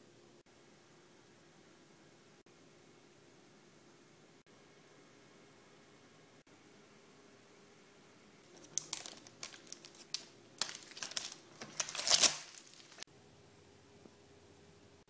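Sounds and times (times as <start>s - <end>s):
rustling and crackling handling: 8.5s - 13.1s.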